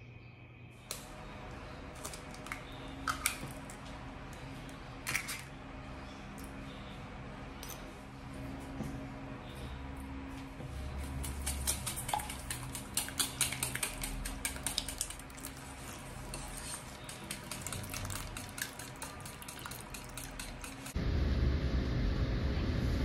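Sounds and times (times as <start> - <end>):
whisk clinking against metal bowl: 11.2 - 21.0.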